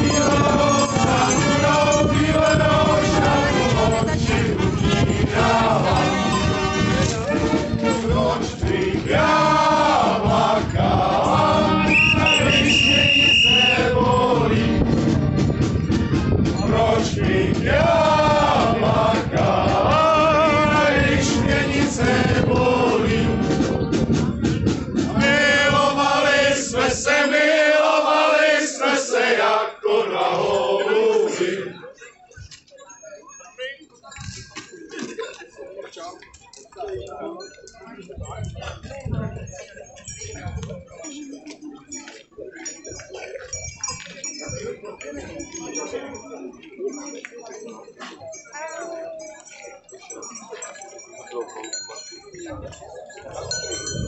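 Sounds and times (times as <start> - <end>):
men singing together: 0.0 - 15.0, 16.6 - 23.9, 25.1 - 31.9.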